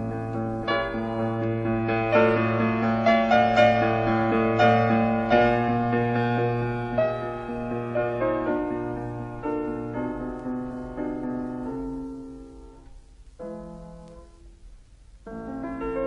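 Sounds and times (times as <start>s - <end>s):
slow piano chords: 0.0s - 16.0s.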